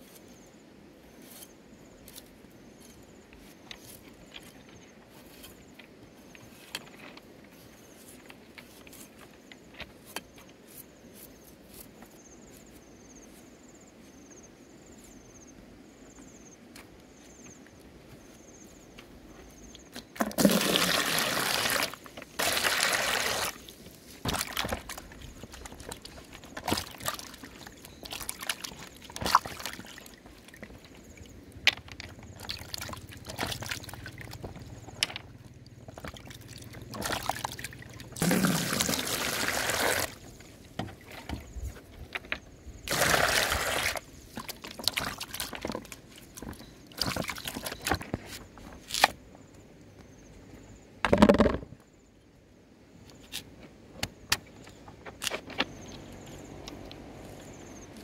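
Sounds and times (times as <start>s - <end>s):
water pouring into plastic basin: 20.2s - 23.7s, 26.6s - 30.6s, 32.4s - 34.3s, 36.0s - 40.2s, 42.9s - 45.8s
water sloshing and dripping: 20.2s - 31.4s, 32.0s - 35.0s, 35.7s - 41.6s, 42.9s - 48.0s.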